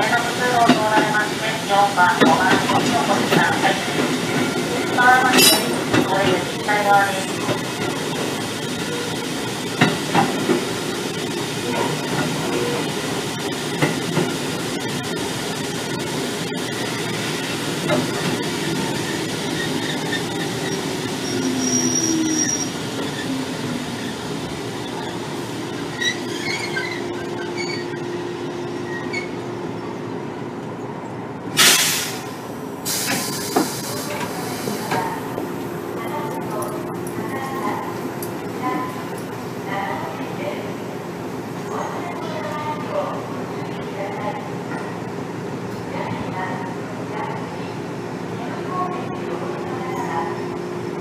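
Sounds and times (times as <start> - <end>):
train mechanical rumble: 0.0 - 51.0
hiss of air: 31.6 - 32.3, 32.9 - 34.8.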